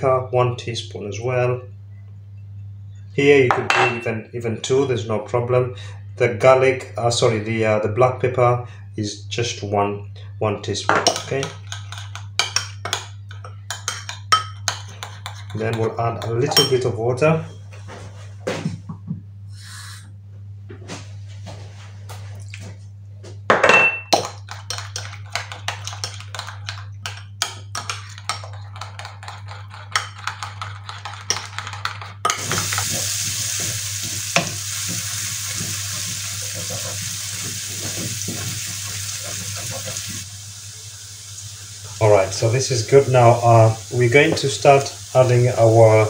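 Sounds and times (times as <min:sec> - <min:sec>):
spoon scraping ceramic bowl: 0:13.6 - 0:16.8, 0:24.5 - 0:32.5
onion sizzling in oil: 0:32.3 - 0:46.0.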